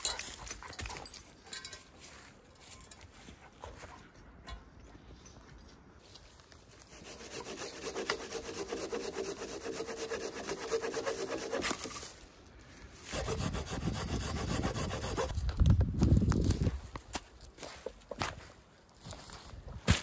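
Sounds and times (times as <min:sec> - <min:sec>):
hand saw cutting wood: 0:06.8 - 0:12.2, 0:13.0 - 0:15.4.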